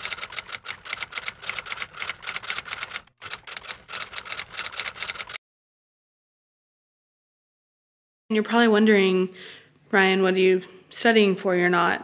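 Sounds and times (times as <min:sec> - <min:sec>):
keyboard typing clicks: 0:00.0 - 0:05.4.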